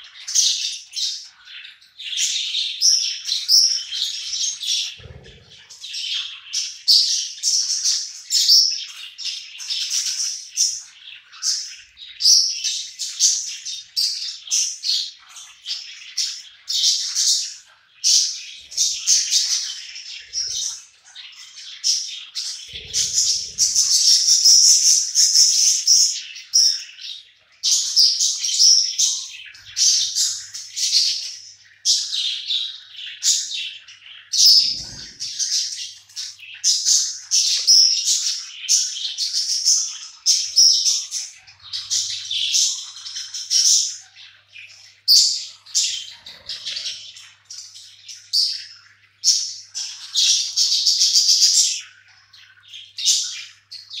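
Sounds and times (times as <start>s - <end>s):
budgerigars chirping: 0.0s - 54.0s.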